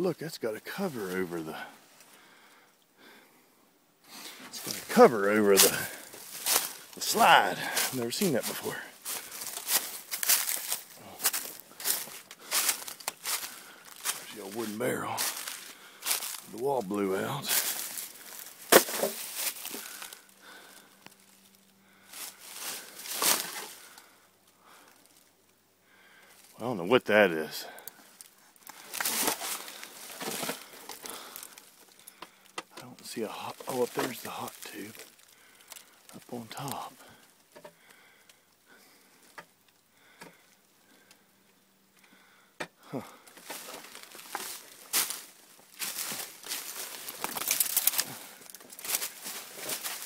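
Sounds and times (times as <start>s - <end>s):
footsteps crunching dry leaves: 4.5s - 21.5s, 22.1s - 24.0s, 28.6s - 32.0s, 33.0s - 37.2s, 43.2s - 50.0s.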